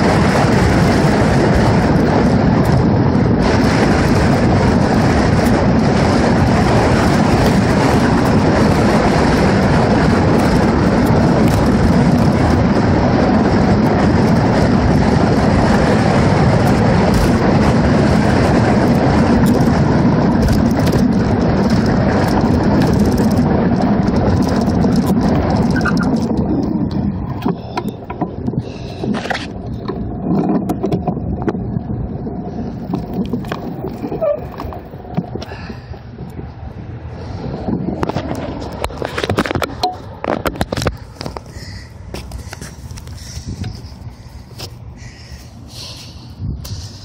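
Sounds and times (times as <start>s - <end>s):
wind rushing over microphone: 0.0s - 47.0s.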